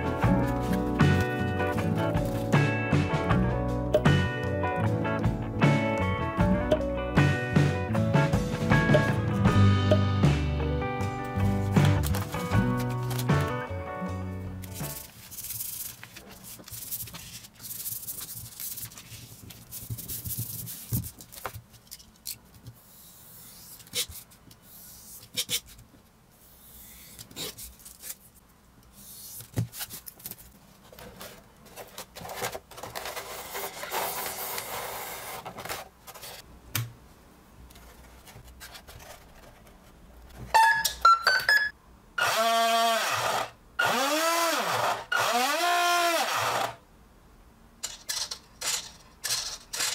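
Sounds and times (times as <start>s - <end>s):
vinyl sheet rubbing: 0.1s - 2.7s, 11.4s - 13.6s, 14.7s - 21.7s, 30.8s - 36.5s.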